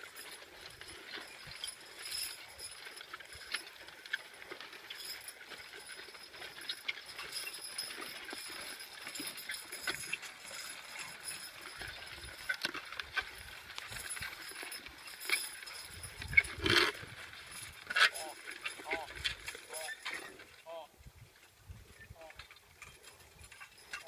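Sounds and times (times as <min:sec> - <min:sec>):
chains and harness clinking: 0:00.0 - 0:20.8, 0:21.7 - 0:24.0
hooves on loose earth: 0:00.0 - 0:24.0.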